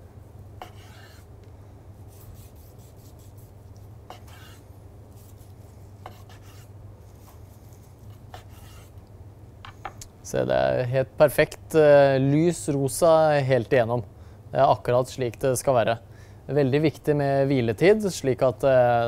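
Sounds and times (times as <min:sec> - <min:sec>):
steady low hum: 0:00.0 - 0:19.0
knife slicing meat: 0:02.1 - 0:04.6, 0:05.2 - 0:06.7.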